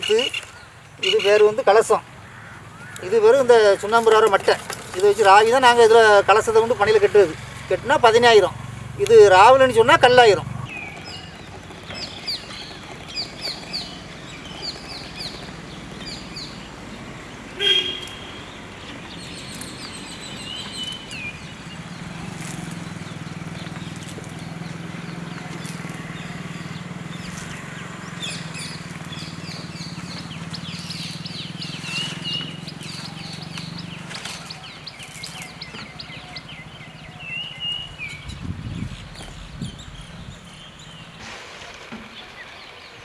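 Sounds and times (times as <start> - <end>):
small birds chirping: 0.0 - 43.0.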